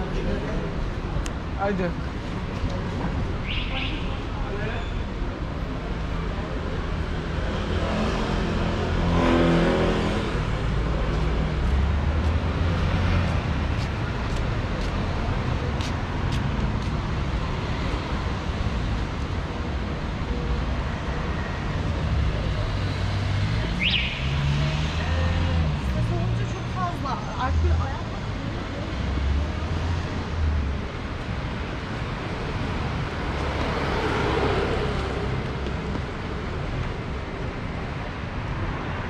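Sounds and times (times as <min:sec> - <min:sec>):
motor vehicles running: 0:04.2 - 0:39.0
car passing: 0:22.3 - 0:37.2.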